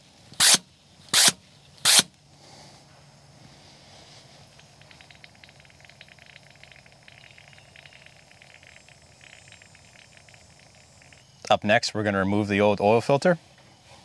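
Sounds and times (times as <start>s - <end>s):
oil crackling and bubbling: 4.9s - 11.1s.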